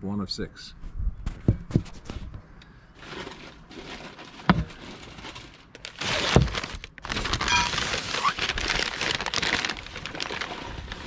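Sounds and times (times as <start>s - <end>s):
rustling of items in a box: 2.9s - 11.0s.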